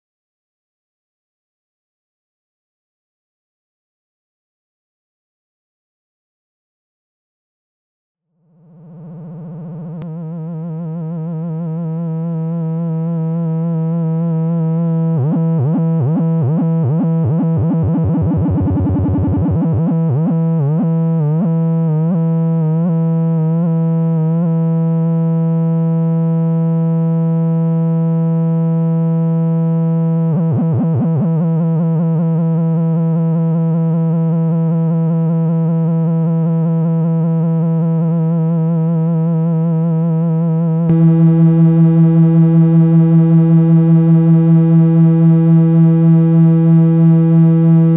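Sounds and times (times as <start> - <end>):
low synthesizer tone wobbling: 8.4 - 24.6, 29.9 - 47.9.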